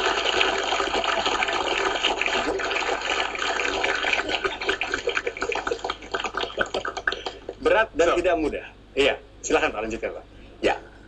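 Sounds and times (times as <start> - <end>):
studio audience applauding: 0.0 - 7.6.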